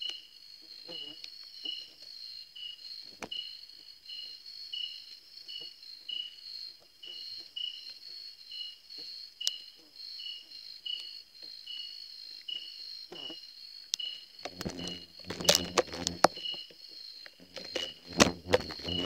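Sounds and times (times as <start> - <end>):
crickets trilling: 0.0 - 19.0
insect chirping: 0.0 - 19.0.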